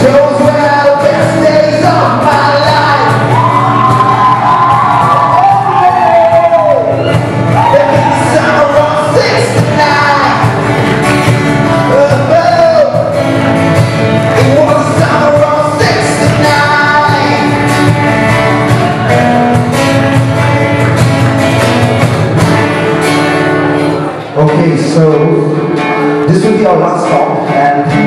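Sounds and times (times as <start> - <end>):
man singing lead: 0.0 - 10.8, 11.4 - 13.2, 14.2 - 19.5, 24.4 - 28.0
acoustic guitars strumming: 0.0 - 28.0
cajon drum: 0.0 - 28.0
electric bass: 0.0 - 28.0.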